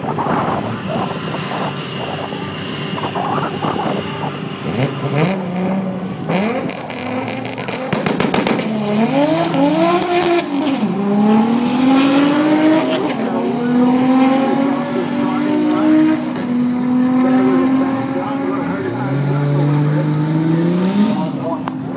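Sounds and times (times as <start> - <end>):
race car engine revving: 0.0 - 21.9
exhaust crackling pops: 6.7 - 8.8.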